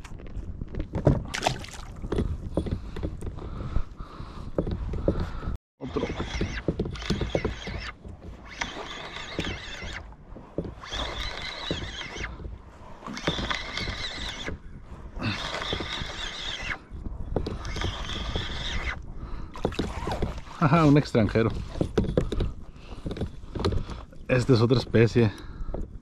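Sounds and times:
fishing reel whirring: 0:05.9 - 0:10.1, 0:10.8 - 0:12.4, 0:13.0 - 0:14.6, 0:15.2 - 0:16.8, 0:17.5 - 0:19.0.

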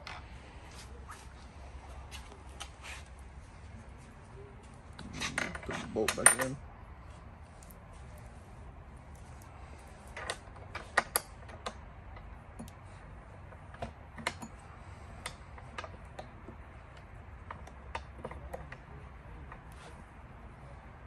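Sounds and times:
small metal clicks and clinks: 0:10.2 - 0:12.8.

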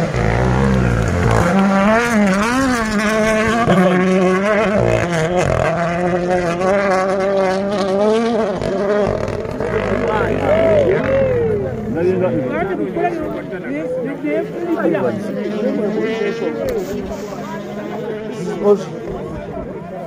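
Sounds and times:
rally car engine revving: 0:00.0 - 0:13.6.

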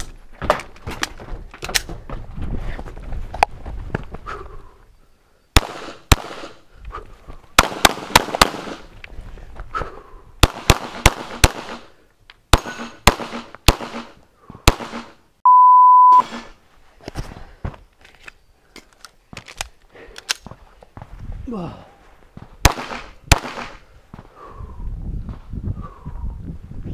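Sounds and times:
pistol shots echoing: 0:05.6 - 0:06.6, 0:07.6 - 0:08.9, 0:10.4 - 0:11.9, 0:12.5 - 0:14.1, 0:14.7 - 0:15.1, 0:22.6 - 0:23.8
electronic beep: 0:15.4 - 0:16.4.

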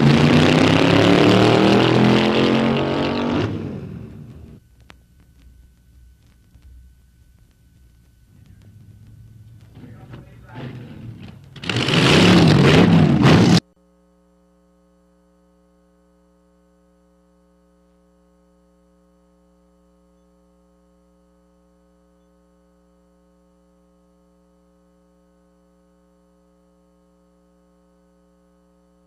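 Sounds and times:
faint electrical hum: 0:04.0 - 0:11.6, 0:13.7 - 0:29.0.

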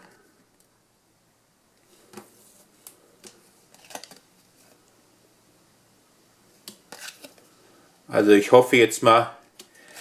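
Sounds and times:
trading cards snapping and rustling: 0:02.1 - 0:04.3.

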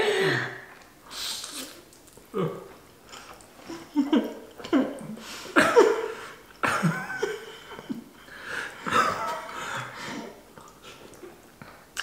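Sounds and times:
noodles being slurped: 0:01.1 - 0:02.2.

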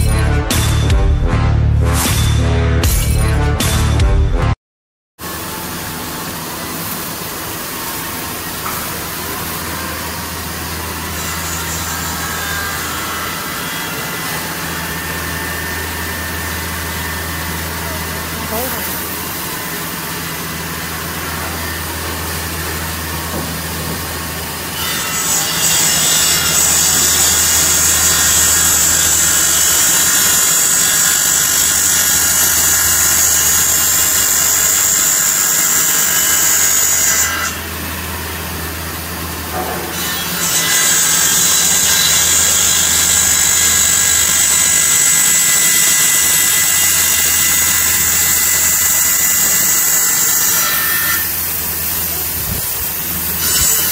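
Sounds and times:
machine hum: 0:05.2 - 0:34.4
saw blade whining in cut: 0:05.2 - 0:53.9.

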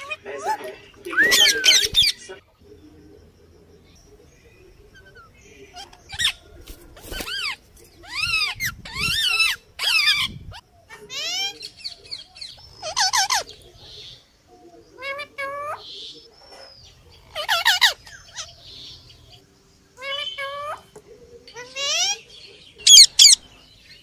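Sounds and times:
parakeet squawks: 0:00.0 - 0:02.2, 0:17.3 - 0:18.5, 0:22.9 - 0:23.4.

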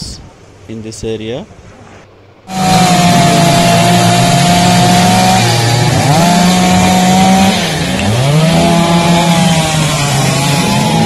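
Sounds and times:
chainsaw running at high revs: 0:02.5 - 0:11.0.

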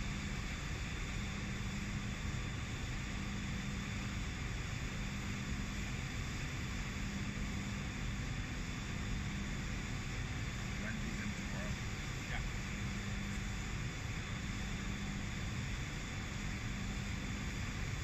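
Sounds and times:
machinery drone: 0:07.8 - 0:17.1.

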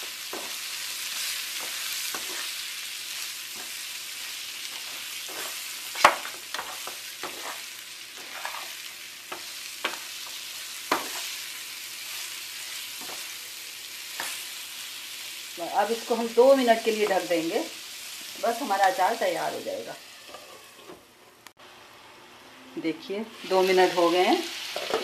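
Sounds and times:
frying sizzle: 0:00.0 - 0:25.0
spatula scraping pan: 0:00.1 - 0:13.4, 0:20.2 - 0:21.3.

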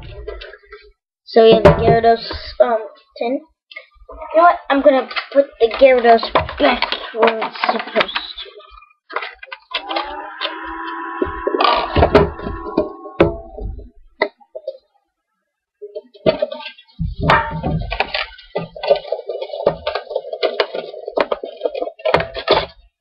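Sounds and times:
metal tin clattering: 0:16.2 - 0:22.9.

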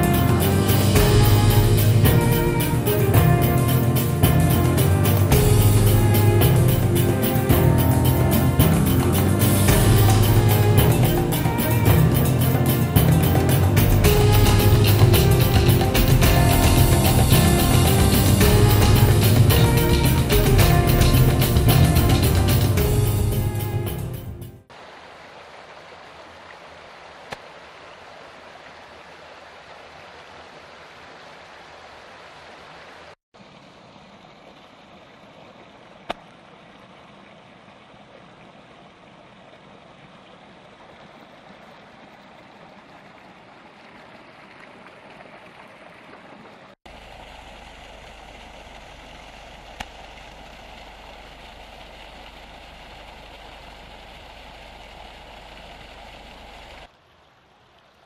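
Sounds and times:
running water rushing: 0:00.0 - 0:58.0
low steady hum: 0:46.9 - 0:56.9.

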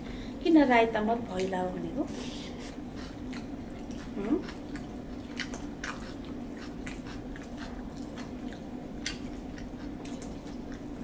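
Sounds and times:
chewing with wet lip smacks: 0:02.6 - 0:11.0.

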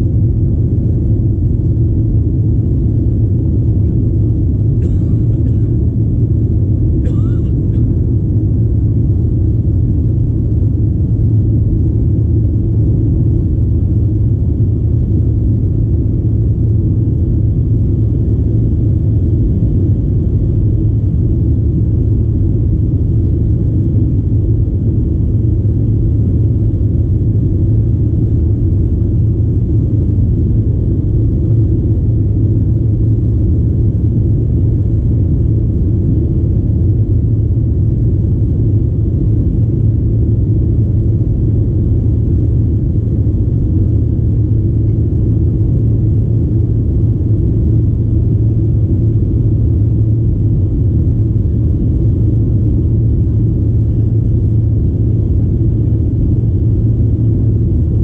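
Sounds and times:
jet engine drone in cabin: 0:00.0 - 0:58.0.

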